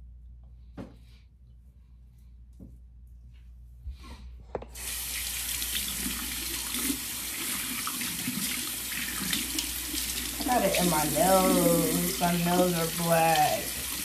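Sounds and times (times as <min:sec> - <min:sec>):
water running from tap: 0:04.8 - 0:14.0.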